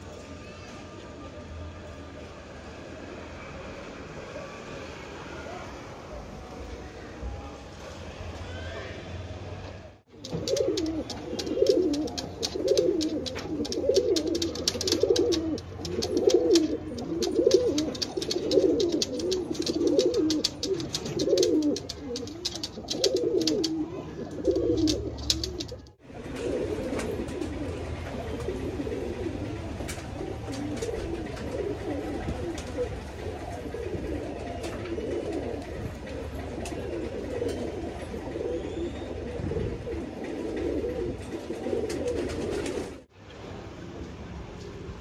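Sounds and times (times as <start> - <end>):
sharp clicks: 10.1 - 23.8, 24.4 - 25.9
pigeons cooing: 10.1 - 43.1.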